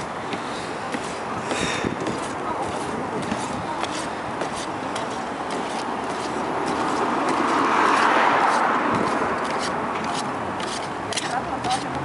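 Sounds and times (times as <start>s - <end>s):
car driving past: 6.7s - 10.0s.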